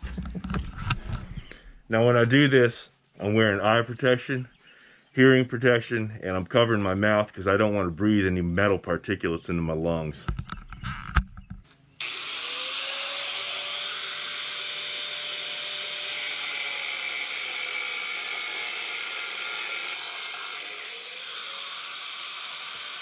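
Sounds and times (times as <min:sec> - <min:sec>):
angle grinder cutting steel rod: 0:12.0 - 0:23.0.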